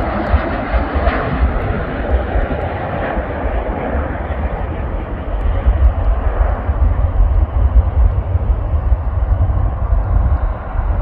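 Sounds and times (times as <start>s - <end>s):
jet engines rushing: 0.0s - 11.0s
low rumble: 0.0s - 11.0s.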